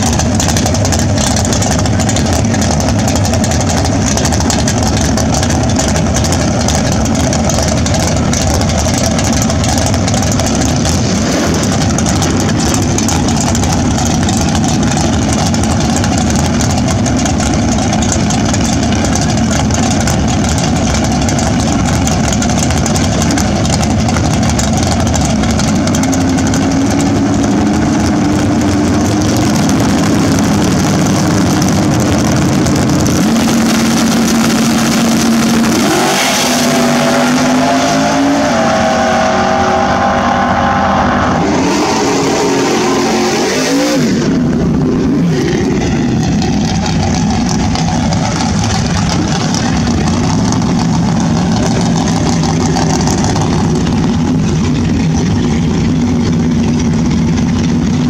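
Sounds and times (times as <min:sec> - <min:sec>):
drag car engine idling loudly: 0:00.0 - 0:58.0.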